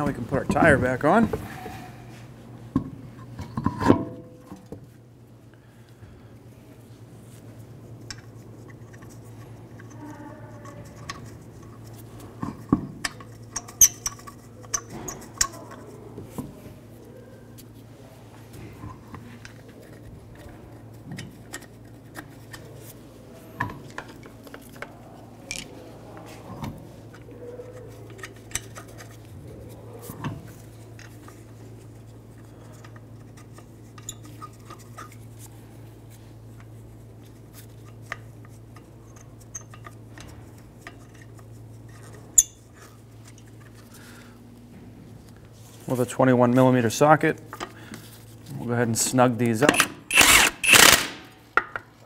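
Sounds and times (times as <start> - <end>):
lug nuts clicking and scraping: 8.0 - 16.0, 27.1 - 29.3.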